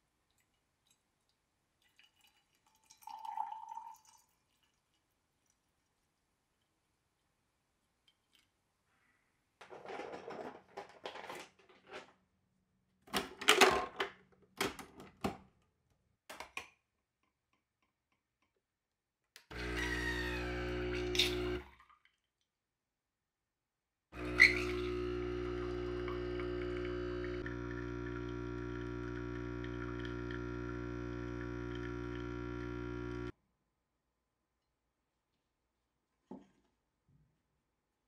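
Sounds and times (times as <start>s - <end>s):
espresso pump buzzing hum: 19.5s - 21.6s, 24.2s - 33.3s.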